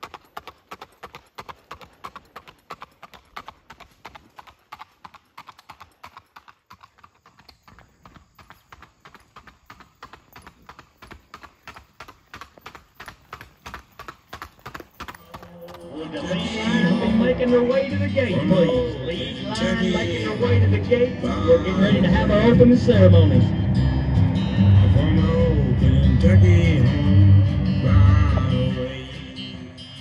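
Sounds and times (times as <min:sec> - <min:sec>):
hoofbeats on pavement: 0:00.0 - 0:16.6.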